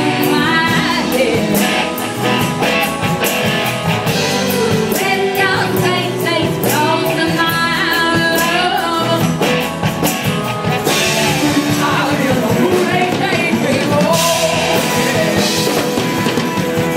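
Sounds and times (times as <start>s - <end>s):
person singing: 0.0s - 2.4s, 4.1s - 9.4s, 10.8s - 16.4s
drums: 0.0s - 16.9s
electric guitar: 0.0s - 16.9s.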